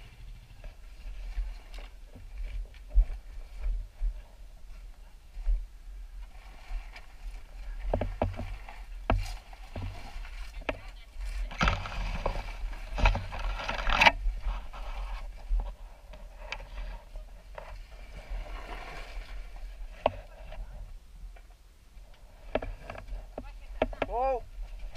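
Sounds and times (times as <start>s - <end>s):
quad bike scraping on dirt: 6.3s - 20.0s.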